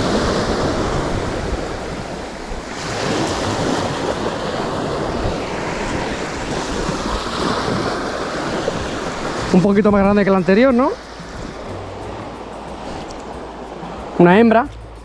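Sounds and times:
wind buffeting microphone: 0:00.0 - 0:14.2
sea waves washing in: 0:00.0 - 0:15.0.

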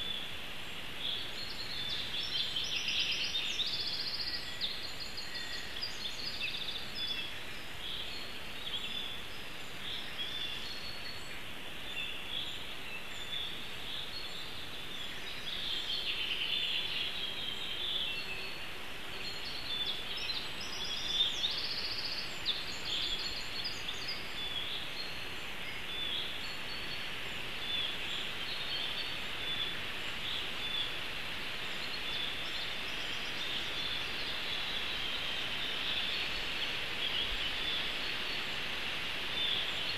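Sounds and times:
songbirds chirping: 0:00.0 - 0:39.9
steady hiss: 0:00.0 - 0:39.9.

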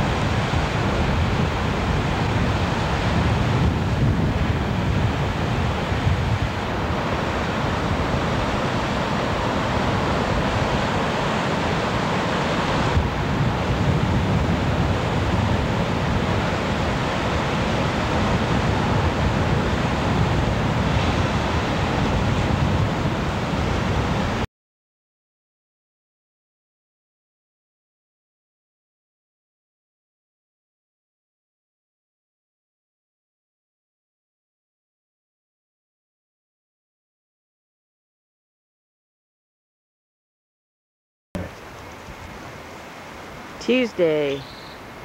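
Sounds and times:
wind buffeting microphone: 0:00.0 - 0:24.4
ocean surf breaking: 0:00.0 - 0:24.5, 0:41.4 - 0:45.0.

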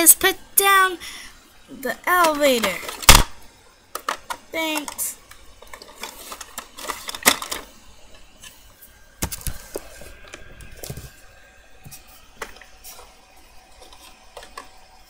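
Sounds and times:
plastic toys clicking and knocking: 0:03.9 - 0:07.7.

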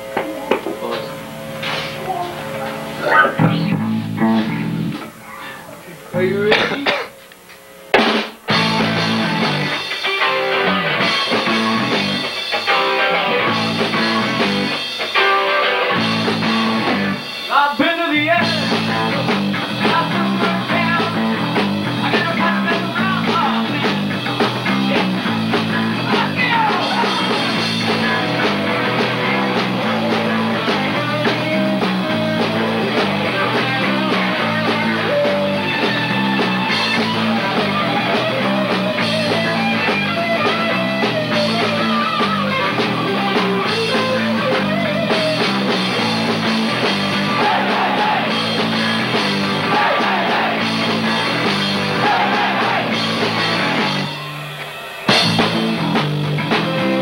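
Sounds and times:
rock band playing live: 0:00.0 - 0:07.1, 0:07.8 - 0:57.0
pulsing bass line: 0:01.2 - 0:05.0.

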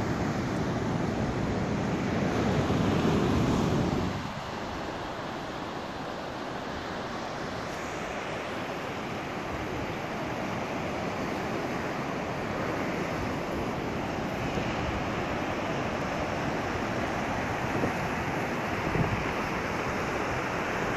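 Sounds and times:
surf washing over rocks: 0:00.0 - 0:20.9.

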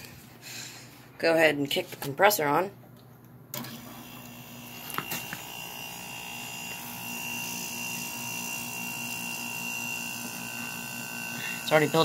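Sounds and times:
air conditioner humming: 0:00.0 - 0:12.0.

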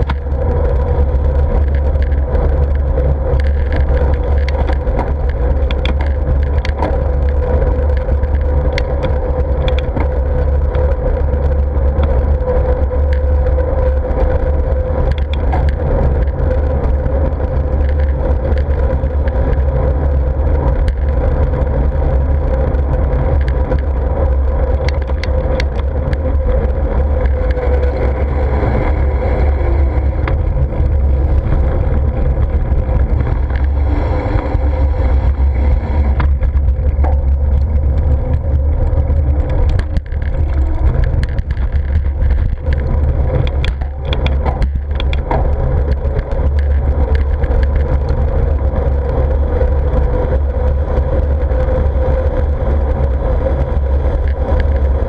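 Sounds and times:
mid-pitched hum: 0:00.0 - 0:55.0
small clicks and rattles: 0:00.0 - 0:55.0
wind rumbling on microphone: 0:00.0 - 0:55.0.

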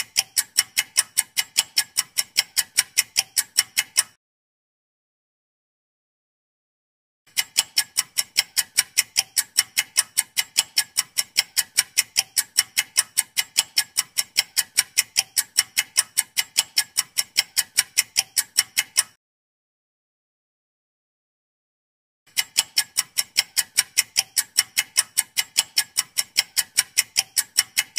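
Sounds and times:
clock ticking: 0:00.0 - 0:04.2, 0:07.3 - 0:19.2, 0:22.3 - 0:27.9.

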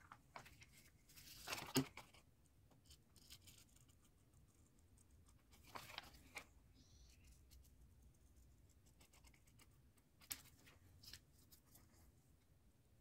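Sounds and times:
paper rustling: 0:00.0 - 0:02.2, 0:05.4 - 0:06.5.

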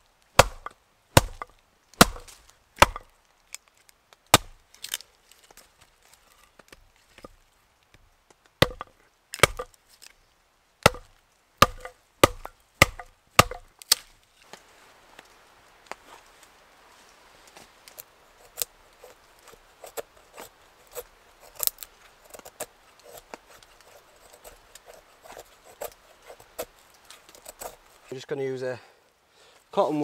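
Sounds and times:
hatchet chopping wood: 0:00.4 - 0:03.1, 0:04.3 - 0:04.6, 0:08.6 - 0:09.7, 0:10.8 - 0:14.0.

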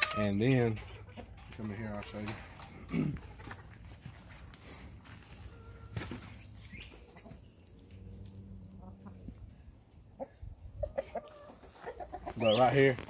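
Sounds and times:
hens clucking: 0:00.0 - 0:13.0
footsteps on dirt: 0:02.1 - 0:07.2.

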